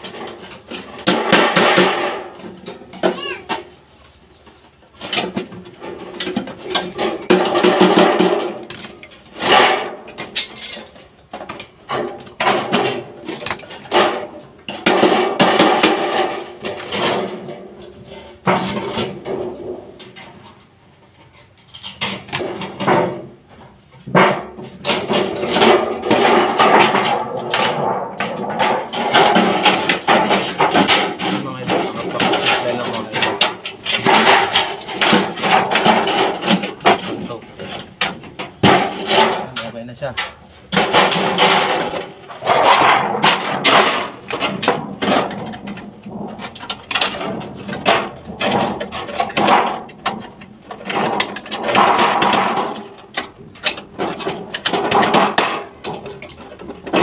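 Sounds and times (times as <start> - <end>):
hammering on sheet metal: 1.0 - 2.6, 11.9 - 17.5
metallic clattering: 4.9 - 57.0.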